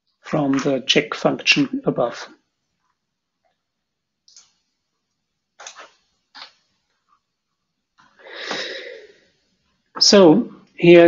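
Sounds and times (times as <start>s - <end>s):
computer mouse clicks: 4.3s - 4.6s
breath-like sound: 8.2s - 9.3s.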